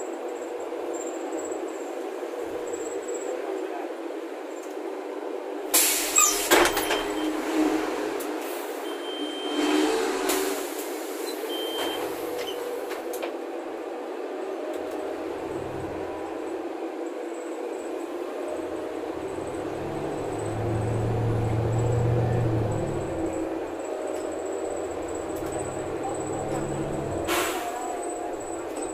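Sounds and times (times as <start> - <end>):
bus cabin drone: 0.0 - 28.9.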